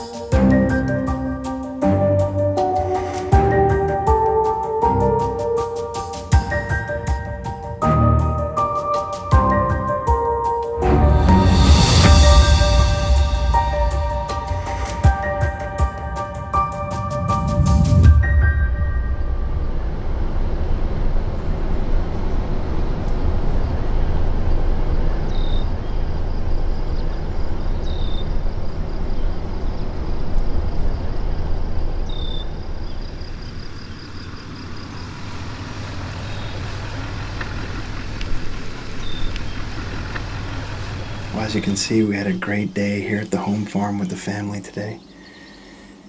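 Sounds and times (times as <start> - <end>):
truck engine and tyres on gravel: 20.1 - 42.3.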